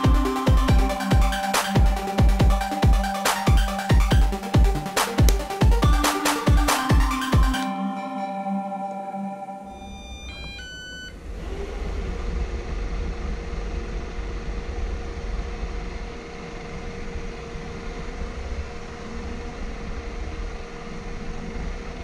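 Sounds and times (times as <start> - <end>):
low rumble: 11.2 - 20.0.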